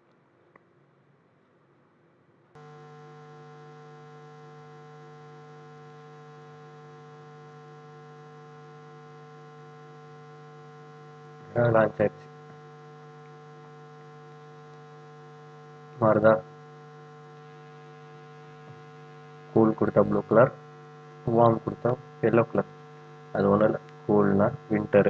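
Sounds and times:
steady electrical hum: 0.0s - 25.0s.

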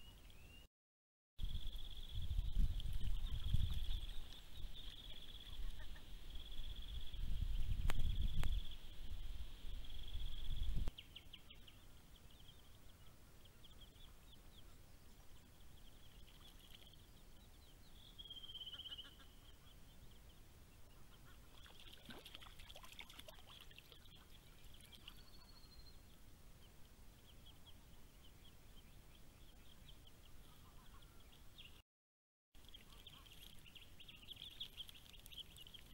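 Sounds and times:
ducklings peeping: 18.4s - 20.2s, 32.6s - 35.9s.

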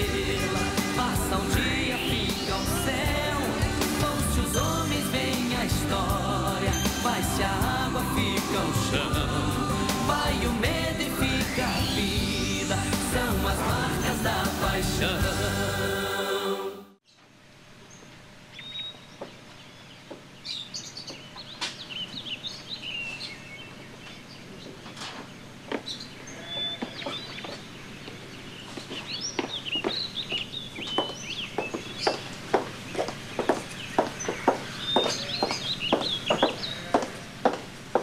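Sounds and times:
small birds chirping: 0.0s - 13.3s, 17.9s - 37.5s
steady low hum: 0.0s - 16.8s.

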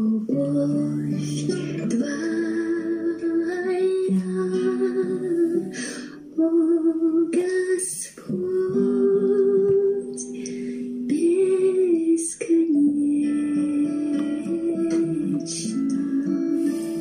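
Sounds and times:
woman singing worship song: 0.0s - 17.0s
musical accompaniment: 13.2s - 17.0s.

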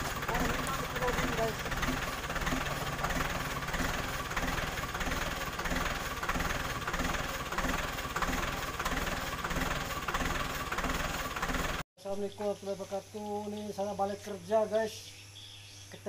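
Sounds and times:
tractor engine idling: 0.0s - 14.6s.

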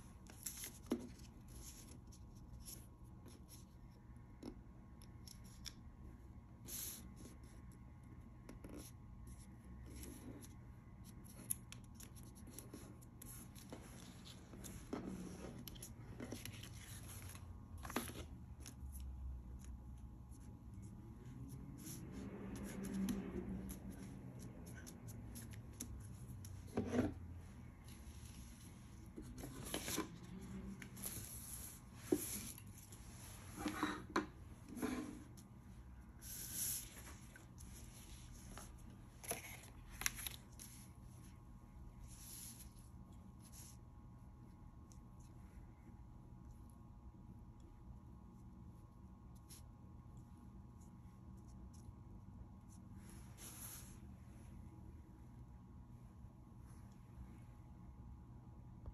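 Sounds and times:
paper rustling and crinkling: 0.2s - 2.8s, 9.9s - 19.1s, 21.8s - 33.6s, 36.2s - 41.0s.

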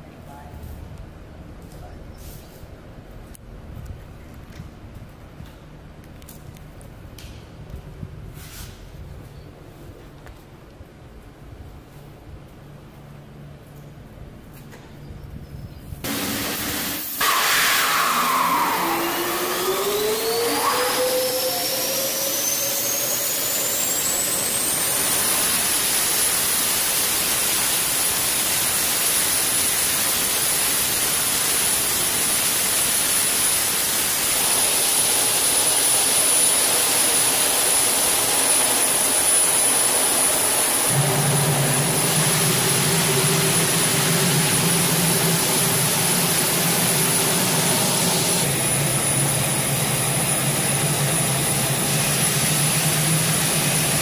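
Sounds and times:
jet engine whine: 6.2s - 54.0s
low hum: 9.2s - 54.0s
loud rushing hiss: 16.0s - 54.0s.

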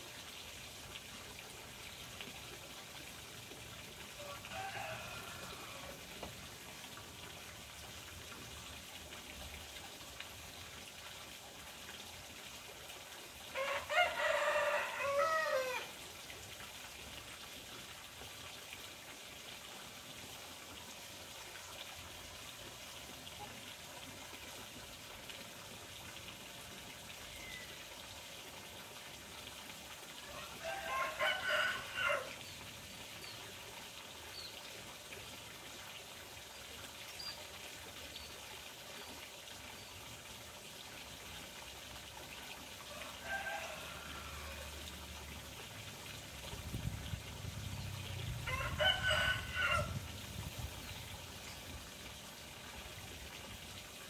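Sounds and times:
running water: 0.0s - 54.0s
rooster crowing: 4.2s - 6.0s, 13.6s - 15.9s, 30.3s - 32.3s, 42.9s - 44.8s, 48.4s - 50.0s.

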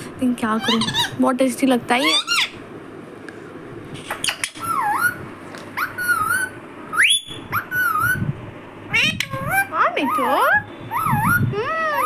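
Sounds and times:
parakeet whistling and chattering: 0.6s - 1.2s, 2.0s - 2.6s, 4.1s - 5.2s, 5.8s - 8.3s, 8.9s - 12.0s.

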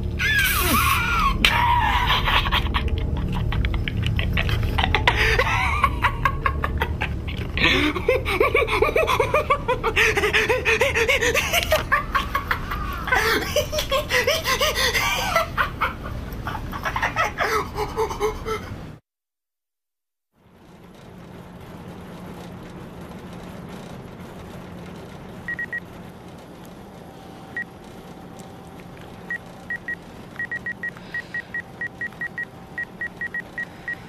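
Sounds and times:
low drone of music: 0.0s - 18.9s
person laughing: 0.2s - 18.9s.

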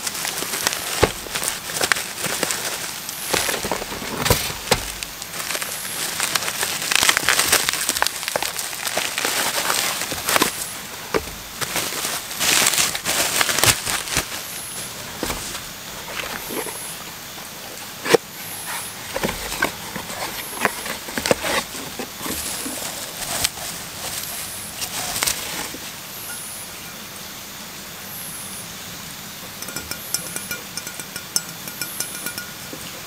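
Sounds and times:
bubble wrap crinkling: 0.0s - 26.0s
cardboard flaps handled: 0.6s - 2.6s, 3.2s - 5.6s, 15.0s - 16.8s.

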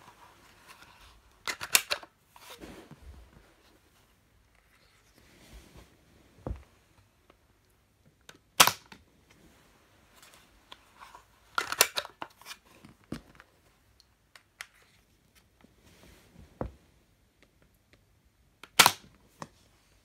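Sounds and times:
toy gun cocking clicks and rattles: 1.5s - 2.1s, 11.6s - 12.2s.

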